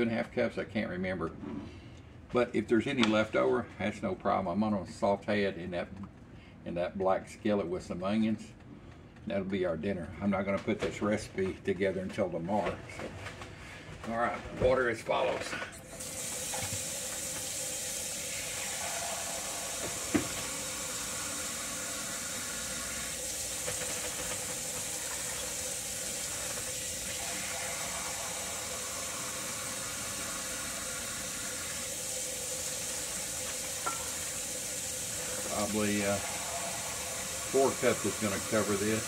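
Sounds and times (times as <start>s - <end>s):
kitchen tap running: 15.8s - 39.0s.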